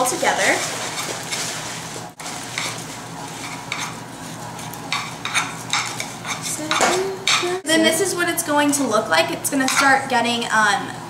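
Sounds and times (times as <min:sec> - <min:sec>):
spoon scraping saucepan: 0:02.2 - 0:07.5.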